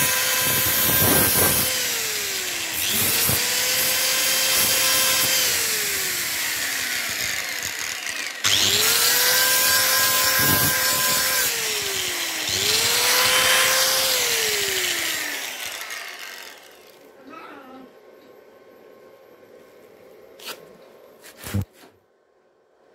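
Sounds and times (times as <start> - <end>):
angle grinder grinding metal: 0.0 - 17.1.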